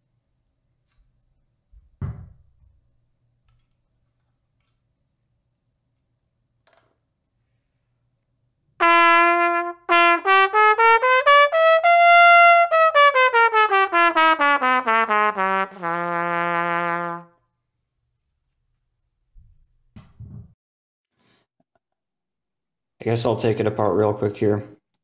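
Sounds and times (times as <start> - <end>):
trumpet playing a scale: 8.8 - 17.4.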